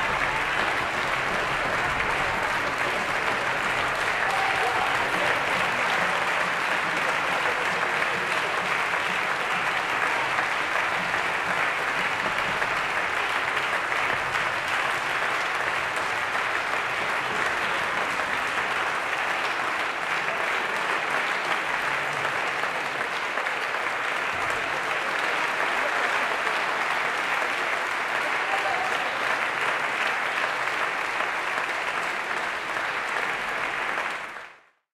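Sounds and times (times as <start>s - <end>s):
audience applauding: 0.0s - 34.8s.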